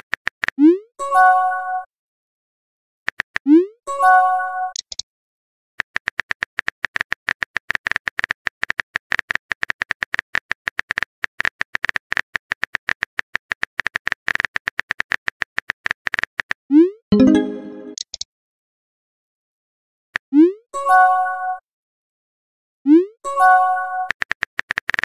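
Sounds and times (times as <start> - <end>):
phone keyboard typing clicks: 4.7 - 5.0
short electronic chime: 17.1 - 18.0.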